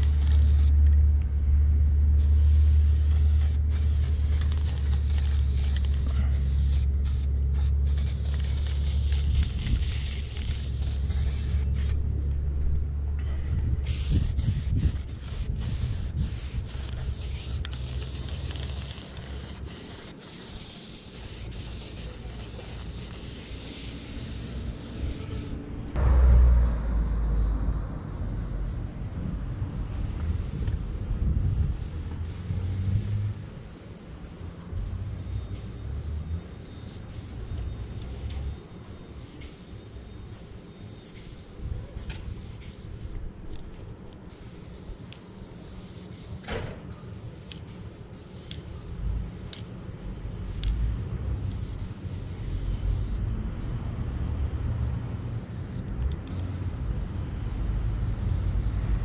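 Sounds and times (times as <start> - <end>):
spray paint cans hissing: 0.0 - 1.0, 2.1 - 12.1, 13.8 - 25.6, 26.3 - 59.0
low rumble: 11.6 - 13.9, 25.5 - 30.3.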